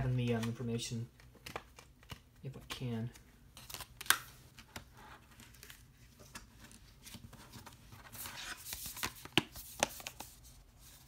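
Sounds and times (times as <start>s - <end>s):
paper insert rustling: 3.6s - 11.0s.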